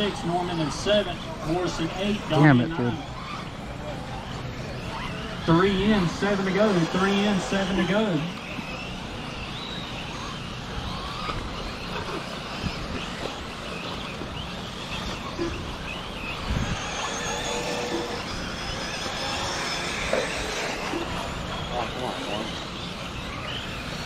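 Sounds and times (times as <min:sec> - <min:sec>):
rc car motors whining: 0:00.0 - 0:24.0
steady background noise: 0:00.0 - 0:24.0.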